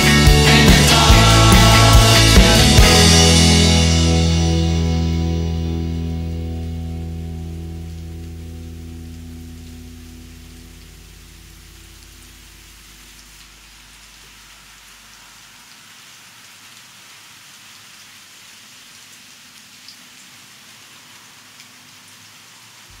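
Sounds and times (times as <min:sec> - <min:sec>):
low sustained song notes: 0:00.0 - 0:14.7
steady hiss: 0:07.7 - 0:23.0
small drip-like ticks: 0:07.8 - 0:23.0.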